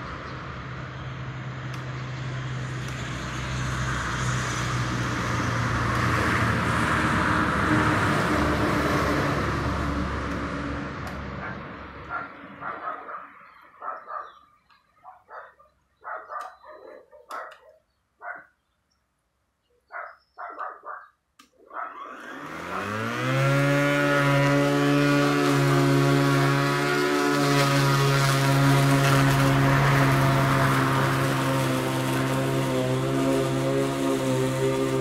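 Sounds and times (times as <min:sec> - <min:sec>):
electric lawn mower motor whine: 0:00.4 - 0:12.7, 0:21.6 - 0:35.0
dog barking: 0:11.4 - 0:14.4, 0:15.0 - 0:18.5, 0:19.9 - 0:22.0.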